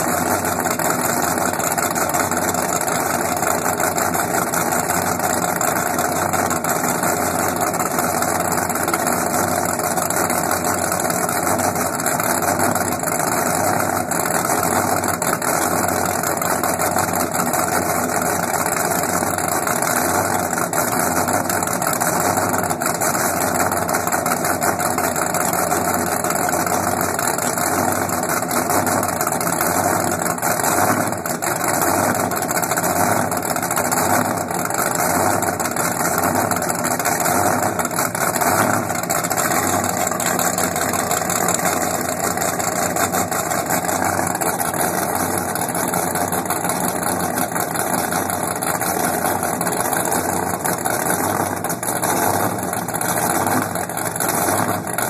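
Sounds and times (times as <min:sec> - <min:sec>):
boat engines idling: 0:00.0 - 0:55.0.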